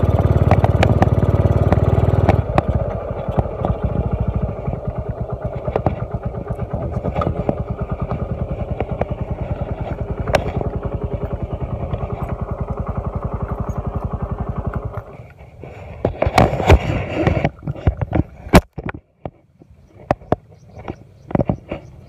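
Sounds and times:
handling knocks and clatter: 0:00.0 - 0:15.2
motorcycle engine running: 0:00.0 - 0:22.0.

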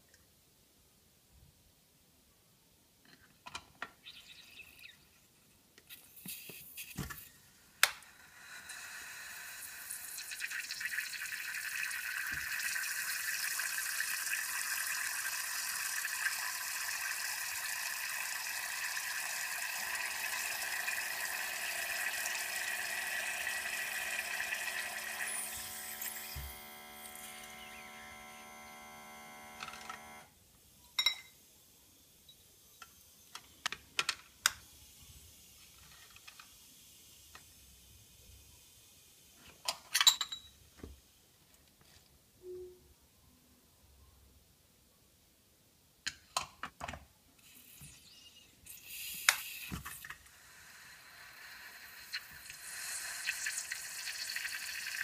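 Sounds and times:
steady hiss of hot water: 0:05.9 - 0:27.2, 0:34.6 - 0:39.5, 0:47.4 - 0:55.0.

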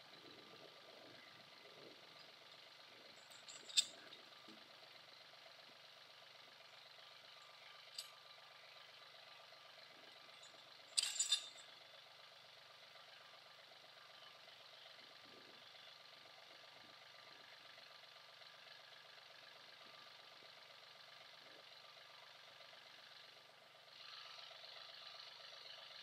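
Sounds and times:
engine idling faintly: 0:00.0 - 0:26.0
sharp metal clanks: 0:03.3 - 0:04.0, 0:11.0 - 0:11.6.

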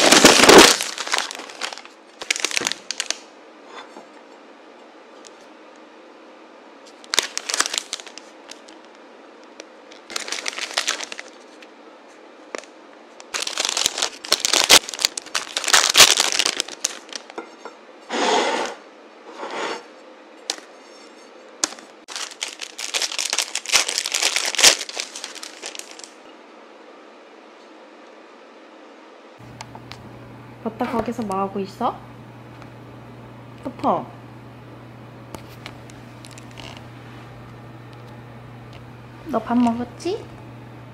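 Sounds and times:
plastic bags crinkling: 0:00.0 - 0:03.3, 0:06.9 - 0:11.7, 0:12.5 - 0:17.4, 0:21.6 - 0:26.2, 0:35.4 - 0:36.8.

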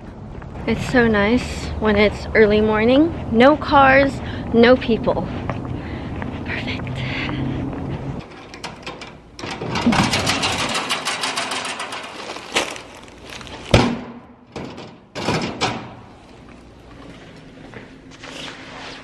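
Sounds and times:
jacket fabric rustling: 0:12.0 - 0:13.8
knocks and sharp thud: 0:13.7 - 0:14.7.

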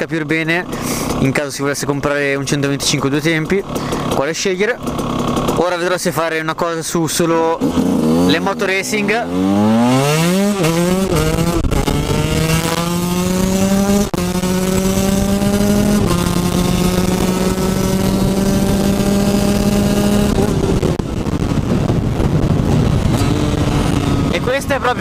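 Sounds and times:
two-stroke motorcycle engine revving: 0:00.0 - 0:06.5, 0:07.2 - 0:25.0.

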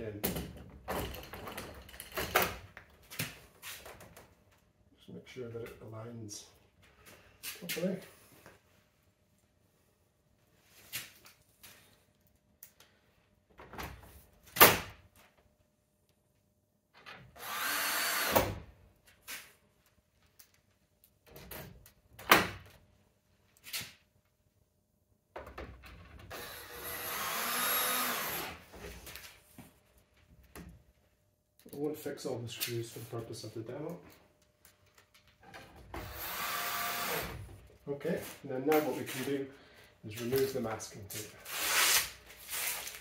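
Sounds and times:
cordless drill driving screws: 0:17.4 - 0:18.5, 0:26.3 - 0:28.6, 0:36.0 - 0:37.4.

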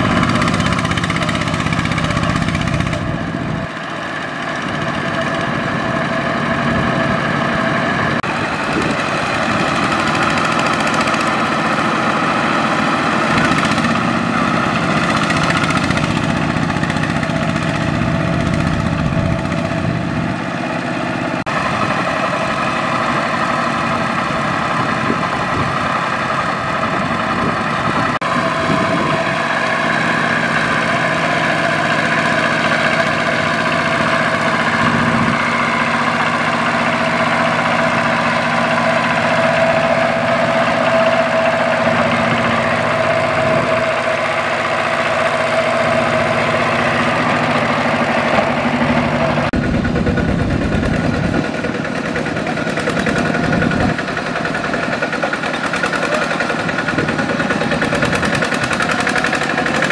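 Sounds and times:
diesel tractor engine running: 0:00.0 - 0:59.9.

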